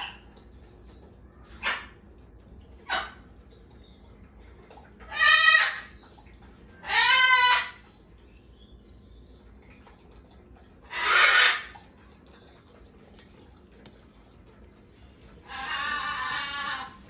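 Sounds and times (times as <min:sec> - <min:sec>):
parrot squawking: 0:05.1 - 0:05.9, 0:06.8 - 0:07.8, 0:10.9 - 0:11.7, 0:15.4 - 0:17.0.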